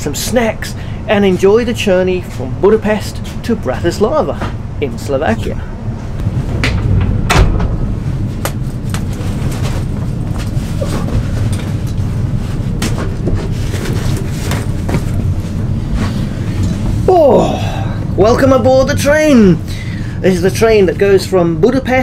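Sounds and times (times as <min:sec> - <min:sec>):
train carriage rumble: 0:00.0 - 0:22.0.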